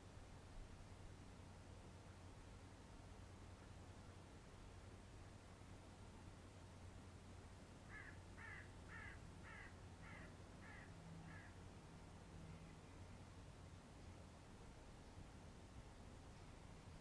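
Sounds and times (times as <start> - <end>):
low steady hum: 0.0 - 17.0
faint bird calls: 7.9 - 11.6.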